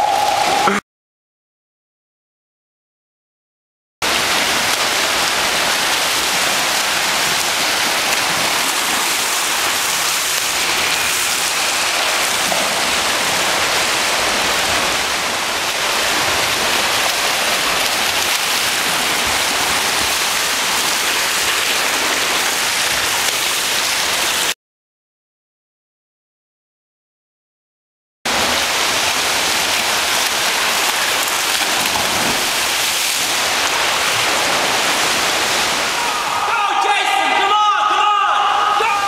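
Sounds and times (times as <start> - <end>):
swimmers splashing: 28.3 - 36.6.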